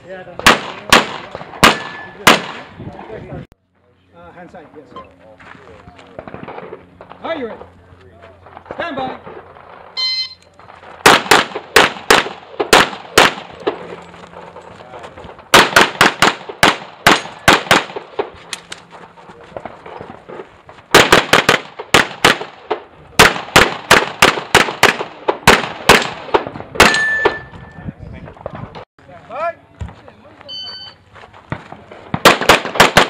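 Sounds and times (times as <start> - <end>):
handgun shots: 23.2 - 27.5.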